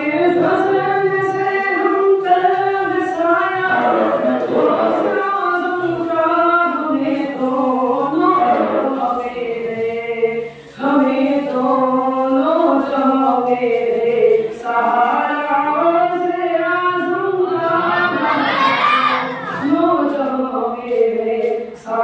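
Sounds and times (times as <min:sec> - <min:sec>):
man singing unaccompanied: 0:00.0 - 0:15.6.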